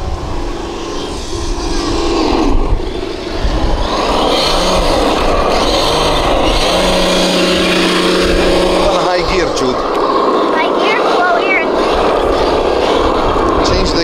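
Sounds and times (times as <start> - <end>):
low rumble: 0.0 - 10.7, 11.6 - 14.0
toy truck electric motor whining: 0.6 - 8.9.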